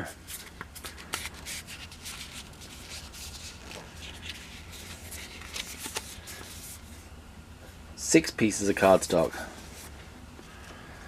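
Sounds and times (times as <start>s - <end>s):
cardstock sheets rustling: 0.3s - 7.0s.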